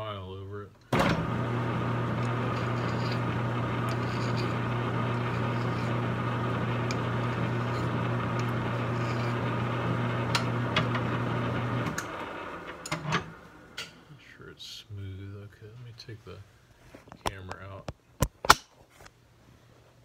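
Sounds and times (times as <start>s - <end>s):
lathe motor hum: 1.0s - 14.0s
file on spinning brass rod: 2.0s - 10.0s.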